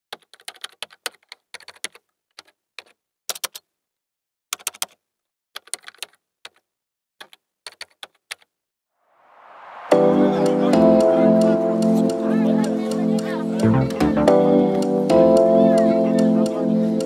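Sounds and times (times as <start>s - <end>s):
typing on keys: 0.1s - 3.6s, 4.6s - 5.0s, 5.6s - 6.6s, 7.2s - 8.5s.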